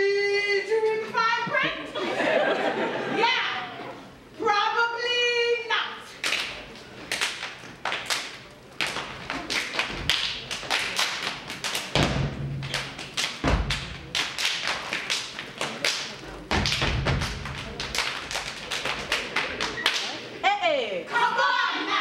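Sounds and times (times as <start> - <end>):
hand claps and slaps: 6.2 - 20.2
foot stomps on wooden stage: 11.9 - 14.1, 16.5 - 17.6.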